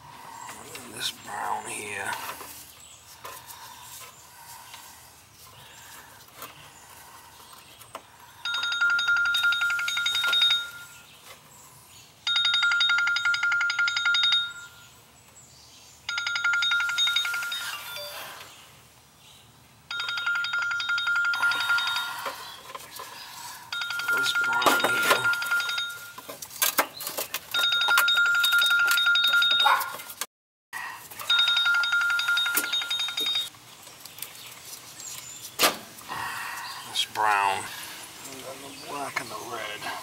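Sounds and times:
telephone ringing: 8.4s - 10.9s, 12.3s - 14.8s, 16.1s - 18.4s, 19.9s - 22.6s, 23.7s - 26.2s, 27.5s - 29.8s, 31.3s - 33.5s.

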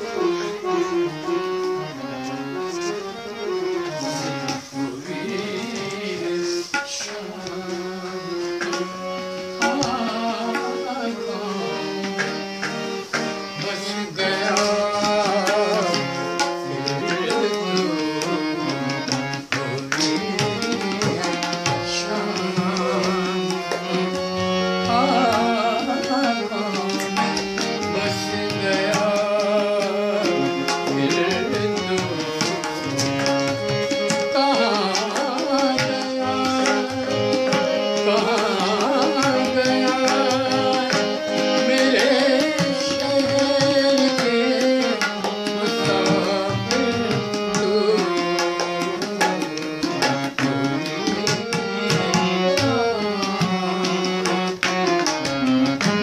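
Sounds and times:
man singing classical vocals: 0.0s - 12.1s, 13.5s - 54.4s
harmonium: 0.0s - 56.0s.

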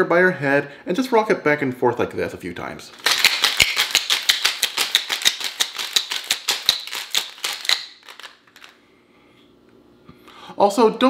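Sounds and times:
ice rattling in cocktail shaker: 3.0s - 8.8s.

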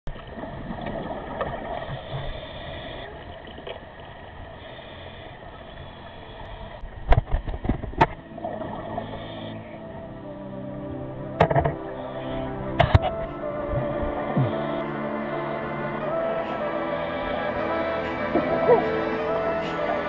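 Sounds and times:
underwater low rush and rumble: 0.1s - 17.4s
steady tones: 8.1s - 20.0s.

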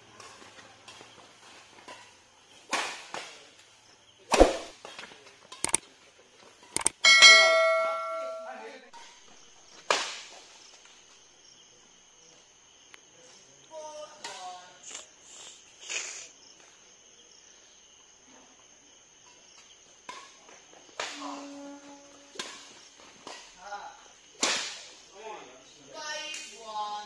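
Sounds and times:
badminton racket hitting shuttlecock: 4.3s - 4.8s
mouse clicks: 6.8s - 7.0s
bell chime ringing: 7.0s - 8.6s.

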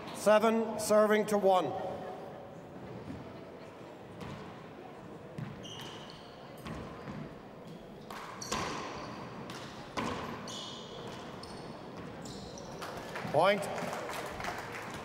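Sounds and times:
shoes squeaking on wooden floor: 5.4s - 9.4s, 10.0s - 12.8s.

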